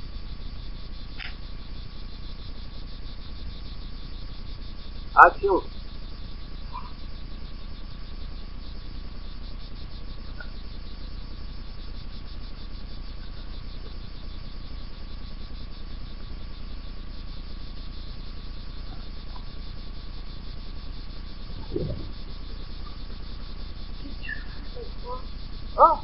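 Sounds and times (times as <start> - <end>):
crickets chirping: 0.0 - 26.0
low outdoor rumble: 0.0 - 26.0.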